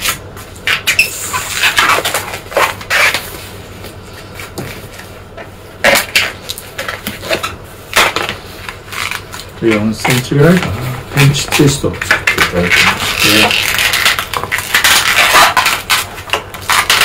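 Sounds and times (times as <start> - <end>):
balloon squeaking and rubbing: 0.0 - 3.3, 11.3 - 17.0.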